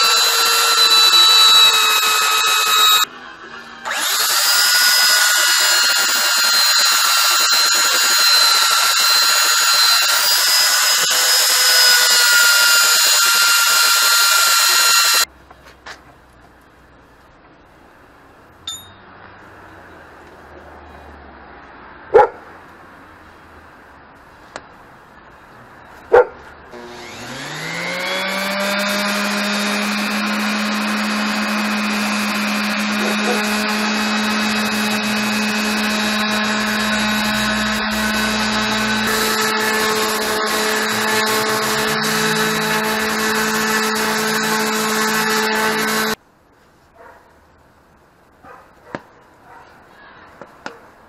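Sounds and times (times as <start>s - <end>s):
orbital sander whining: 0.0s - 15.3s, 26.7s - 46.2s.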